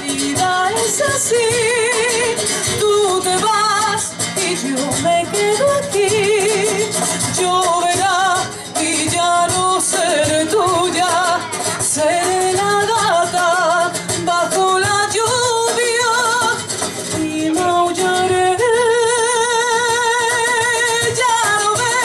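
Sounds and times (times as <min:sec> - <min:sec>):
instrumental accompaniment: 0:00.0 - 0:22.0
woman singing with vibrato: 0:00.0 - 0:22.0.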